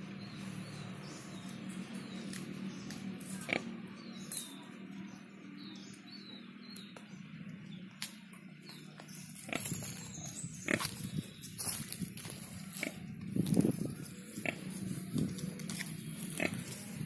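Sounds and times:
bird chirps: 0.1s - 17.0s
sharp animal sounds: 9.4s - 11.2s
sow grunting: 16.2s - 16.8s.

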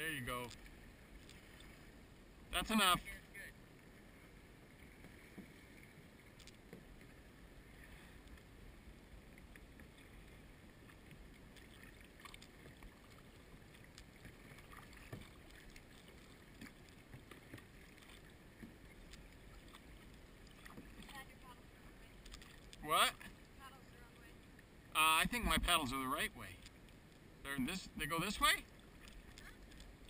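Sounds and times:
faint water lapping: 0.0s - 30.0s
paddle splashes and drips: 0.3s - 2.1s, 2.7s - 27.4s, 28.2s - 30.0s.

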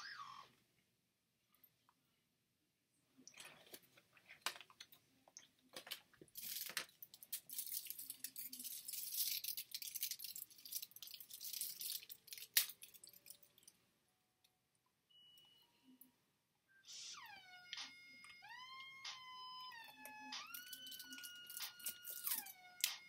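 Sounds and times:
cardboard and foil crinkling: 6.2s - 13.7s, 20.5s - 22.5s.

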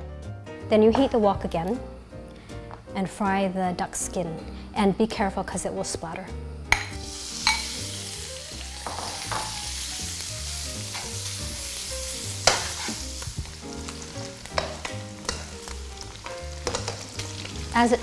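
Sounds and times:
duck skin sizzling in a wok: 6.7s - 18.0s
metal spatula scraping a wok: 12.4s - 13.2s.

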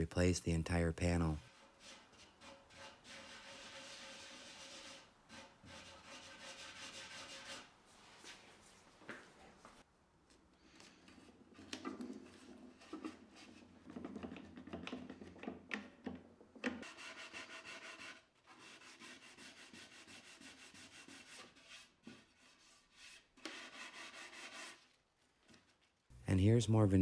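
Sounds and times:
gloved hand rubbing wood: 16.8s - 25.6s.

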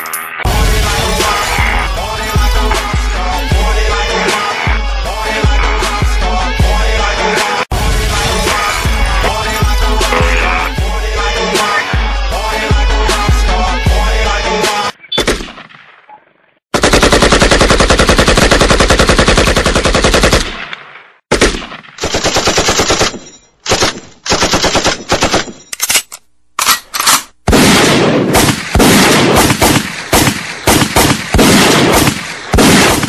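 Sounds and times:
automatic gunfire bursts: 16.8s - 20.6s, 21.3s - 25.5s.

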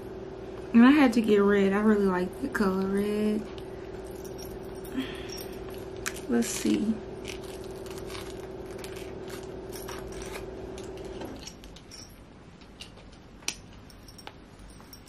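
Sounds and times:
steady low hum: 0.0s - 15.0s
metal tag clinking: 4.0s - 7.4s, 9.7s - 15.0s.

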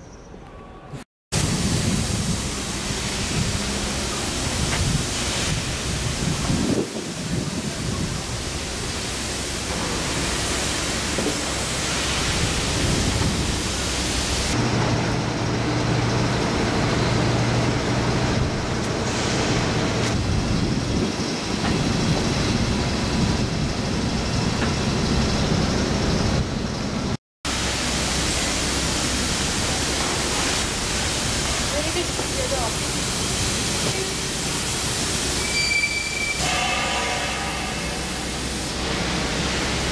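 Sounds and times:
wind rushing over microphone: 1.4s - 3.8s, 4.4s - 8.6s, 19.8s - 26.7s.

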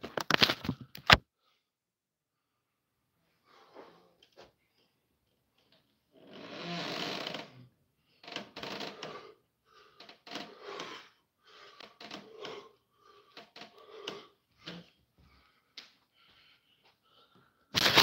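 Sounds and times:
hard breathing in bursts: 8.9s - 17.8s.

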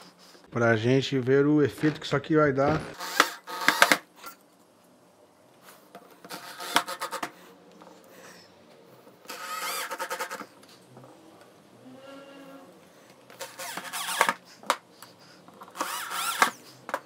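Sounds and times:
cordless drill driving screws: 2.7s - 4.0s, 15.8s - 16.6s.

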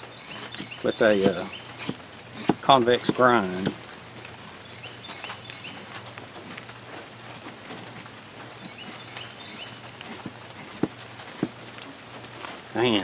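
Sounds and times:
machete scraping wood: 0.1s - 3.8s, 5.1s - 6.7s, 7.3s - 11.6s, 12.2s - 13.0s
sharp knocks: 10.2s - 11.6s.

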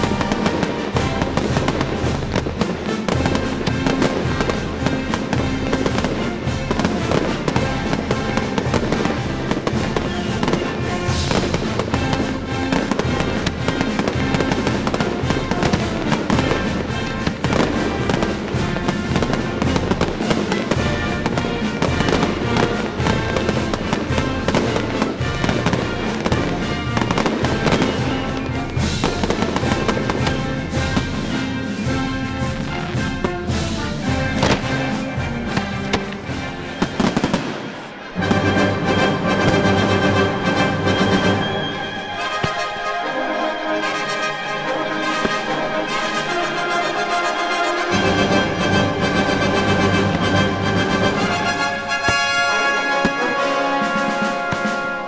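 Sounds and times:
fireworks launching and bursting: 0.0s - 55.0s
music playing: 0.0s - 55.0s.

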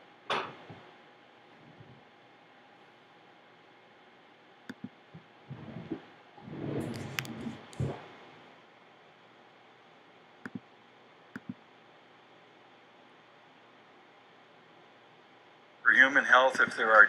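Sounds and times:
computer mouse clicking: 4.7s - 5.0s, 6.9s - 7.9s, 10.4s - 10.7s, 11.3s - 11.6s.

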